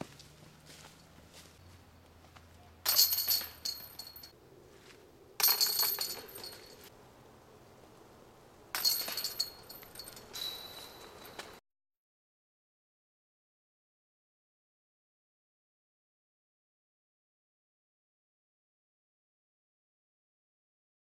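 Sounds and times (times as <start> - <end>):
discs hitting metal chains: 2.8 - 4.3, 5.4 - 6.9, 8.8 - 11.5.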